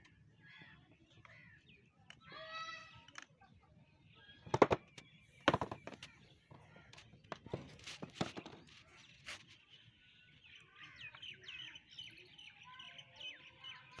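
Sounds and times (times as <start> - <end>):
birds chirping: 0.0 - 14.0
sharp clicks and knocks: 4.5 - 6.1.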